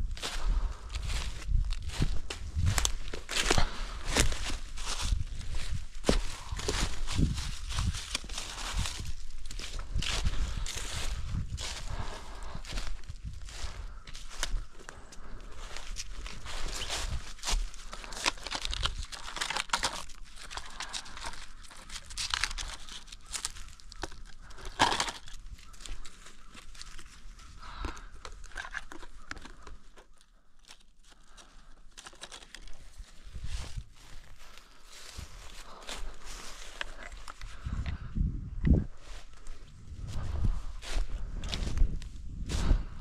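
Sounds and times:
footsteps crunching dry leaves: 0.0 - 38.1, 38.9 - 43.0
paper crinkling and rustling: 15.2 - 37.7.

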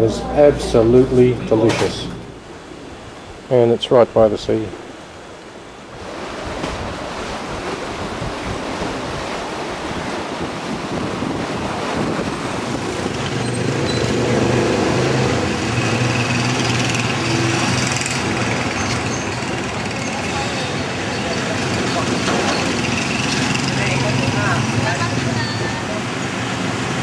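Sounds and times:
steady outdoor rushing noise: 0.0 - 27.0
small engines passing close by: 12.9 - 27.0.

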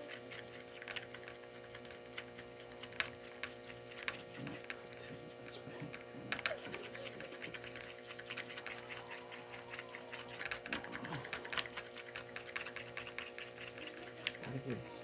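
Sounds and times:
paint stirrer clicking on plastic: 0.0 - 14.8
faint steady hum: 0.0 - 15.0.

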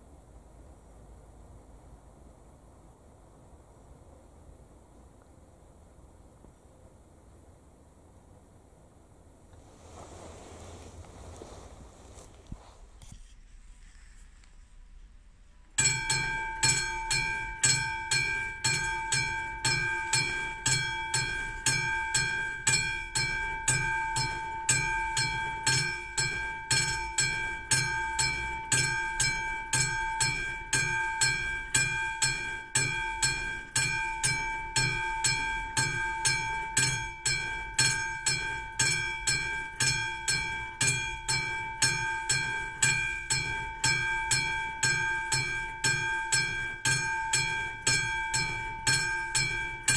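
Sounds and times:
level crossing warning bell: 15.6 - 49.9.

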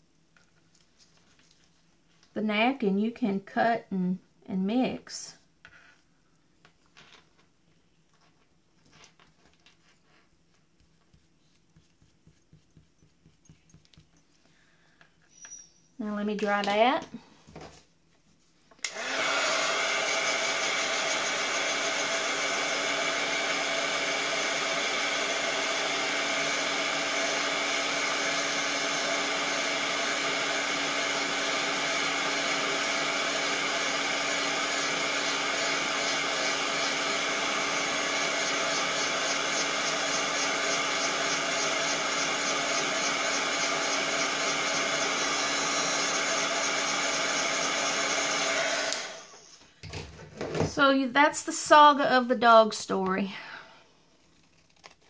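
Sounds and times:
heat tool fan whirring: 18.8 - 49.6.

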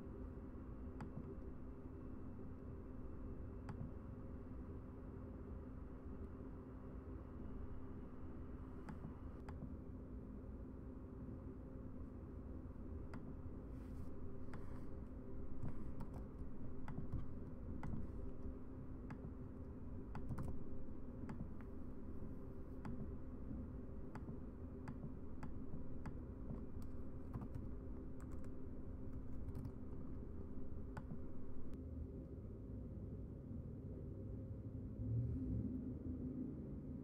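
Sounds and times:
low hum: 0.0 - 37.0
computer keys and mouse clicking: 0.9 - 1.6, 3.6 - 4.0, 8.7 - 9.8, 13.0 - 31.8.

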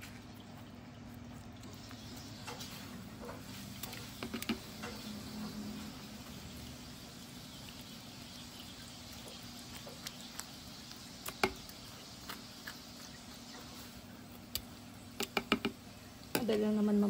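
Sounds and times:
low steady hum: 0.0 - 17.0
spoon scraping avocado: 9.3 - 15.8.

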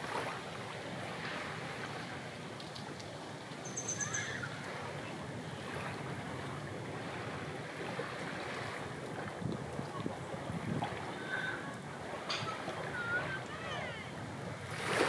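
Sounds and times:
small waves rushing: 0.0 - 15.0
high-pitched chirps: 3.6 - 4.3
wind on the microphone: 5.6 - 15.0.

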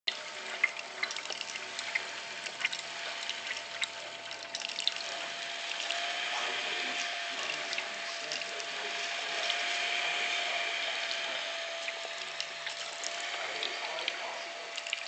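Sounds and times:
small bubbly pops and ticks: 0.1 - 5.1, 11.8 - 15.0
coolant churning and splashing: 0.1 - 15.0
pump whine: 0.1 - 15.0.

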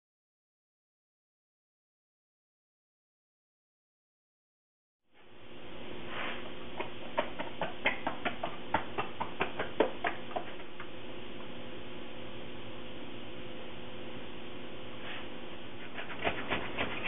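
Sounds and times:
steady hum: 5.2 - 17.0
hands smacking wet dough: 6.8 - 10.9.

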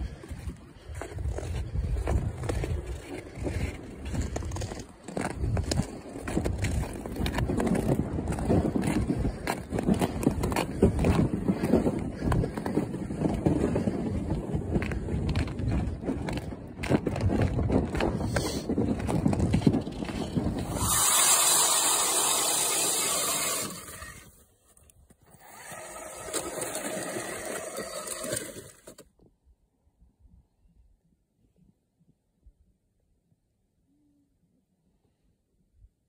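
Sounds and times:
wind rumbling on microphone: 0.0 - 24.4
footsteps crunching on ice: 0.0 - 28.9
ice auger scraping through ice: 0.3 - 16.4, 18.0 - 24.5, 25.2 - 29.0.

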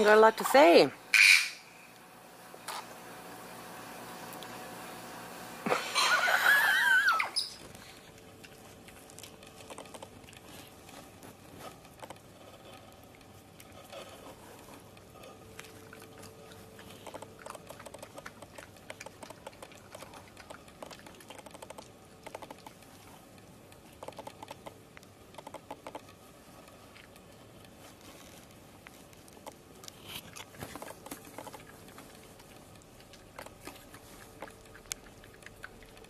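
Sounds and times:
animal eating on wooden decking: 0.0 - 36.0
harsh bird call: 1.1 - 1.7.

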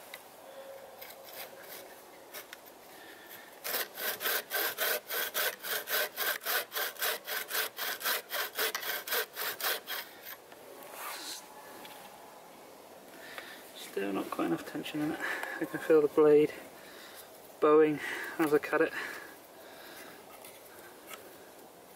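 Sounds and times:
bow saw cutting wood: 3.6 - 11.4.

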